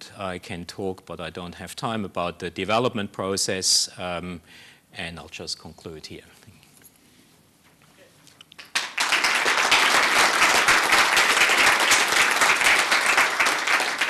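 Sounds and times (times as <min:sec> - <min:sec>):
audience applauding: 0:08.6 - 0:14.0.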